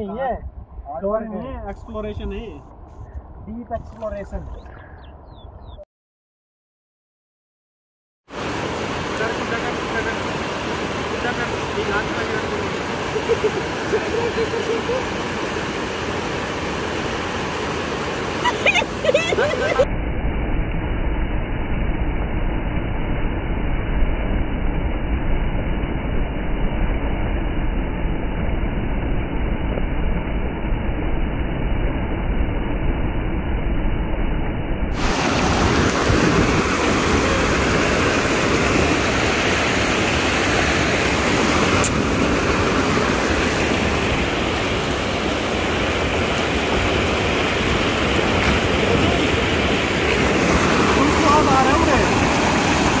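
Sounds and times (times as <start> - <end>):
river rapids rushing over rocks: 35.0 - 53.0.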